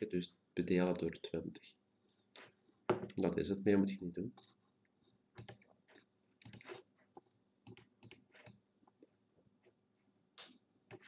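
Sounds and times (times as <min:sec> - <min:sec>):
computer keyboard clicks and taps: 0:05.4 - 0:05.6
computer mouse clicks: 0:05.4 - 0:05.6, 0:06.4 - 0:06.8, 0:07.6 - 0:08.6, 0:10.4 - 0:11.0.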